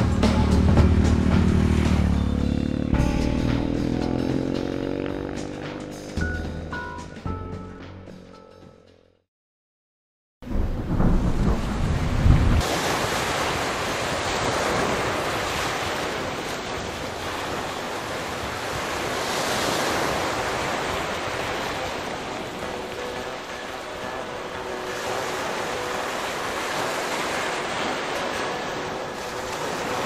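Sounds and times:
rush of wind: 10.5 - 30.0
choppy sea water churning: 11.0 - 30.0.

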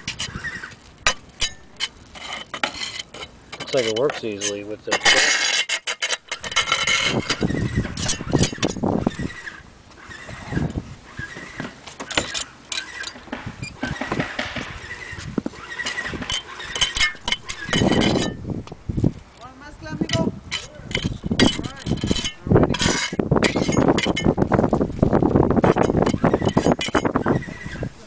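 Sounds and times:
trowel spreading sealant: 0.0 - 9.5
hand tools scraping tiles: 0.0 - 9.6, 11.3 - 18.4, 20.1 - 24.4, 25.6 - 28.0.

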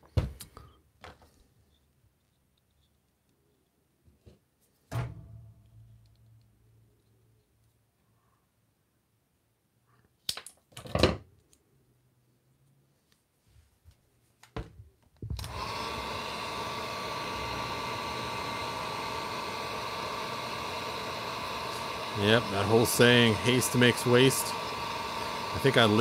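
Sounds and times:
heat gun blowing: 15.4 - 26.0.

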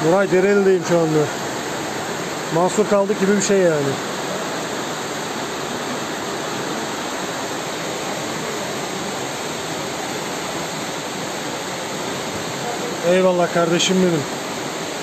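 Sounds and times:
floodwater rushing down street: 0.0 - 15.0.

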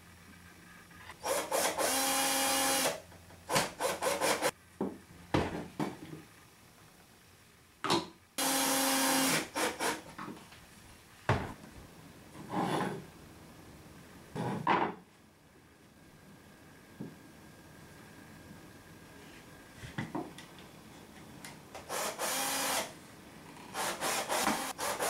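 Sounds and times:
cordless drill running: 1.2 - 3.0, 8.4 - 10.0, 21.9 - 22.9, 23.7 - 25.0.

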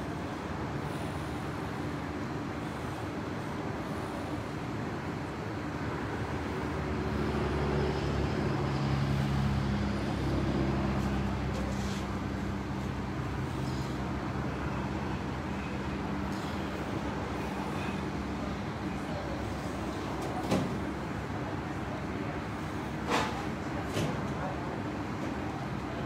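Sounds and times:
road traffic noise: 0.0 - 26.0
passing vehicle engine hum: 4.0 - 26.0.

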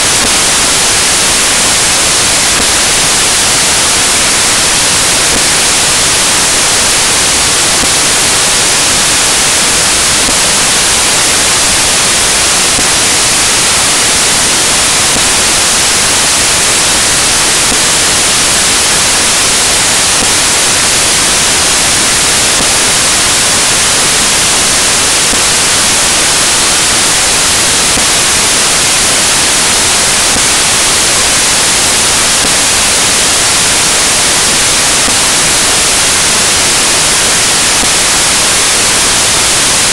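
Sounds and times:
static hiss: 0.0 - 39.9.

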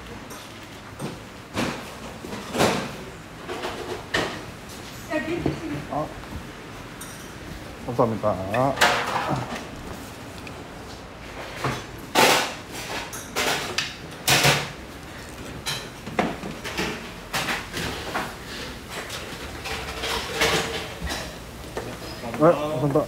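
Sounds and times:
restaurant clatter: 0.2 - 23.0.

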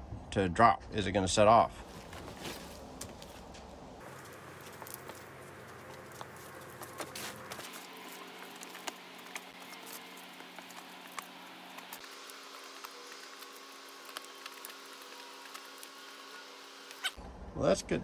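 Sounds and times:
light hum: 1.8 - 17.5.

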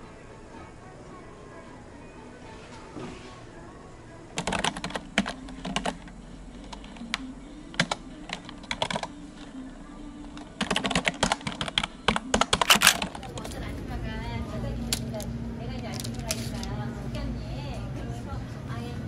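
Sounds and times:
typing on keyboard: 4.4 - 9.1, 10.4 - 13.1.

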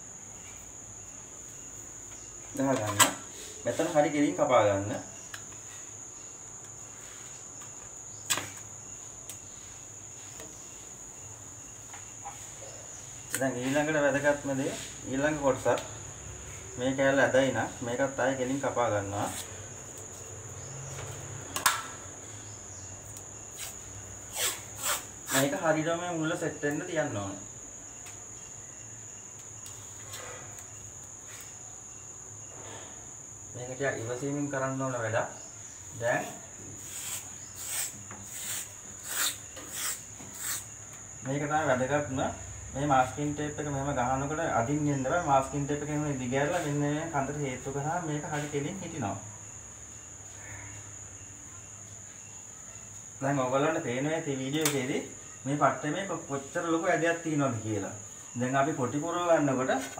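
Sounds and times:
crickets chirring: 0.0 - 59.9
masking tape rustling: 23.1 - 25.6, 36.2 - 40.8.

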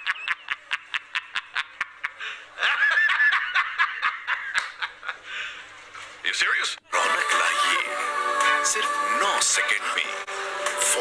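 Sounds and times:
man laughing hard: 0.0 - 5.2.

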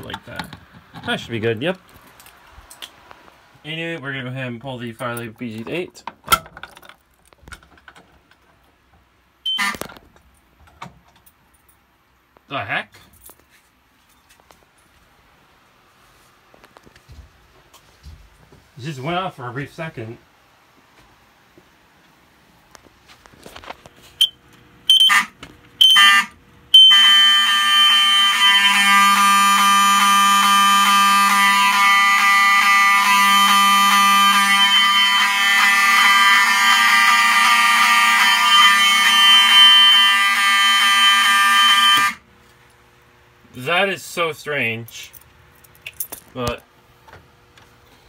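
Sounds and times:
fire alarm horn blast: 9.5 - 9.8, 24.9 - 42.2.

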